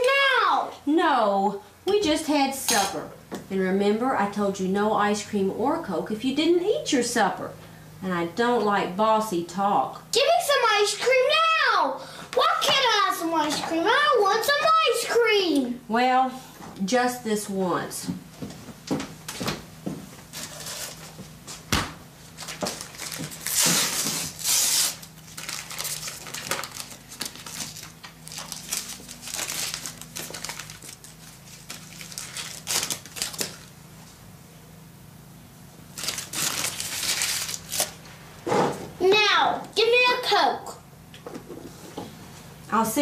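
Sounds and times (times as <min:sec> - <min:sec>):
paper wrapper crinkling: 0:20.3 - 0:21.2, 0:22.3 - 0:33.7, 0:35.9 - 0:38.1.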